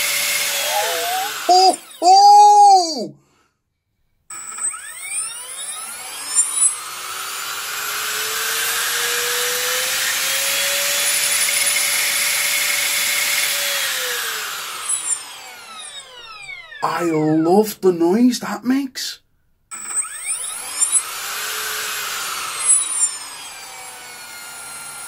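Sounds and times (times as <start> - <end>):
electric motor whine: 0.0 - 2.1, 4.3 - 16.8, 19.7 - 25.0.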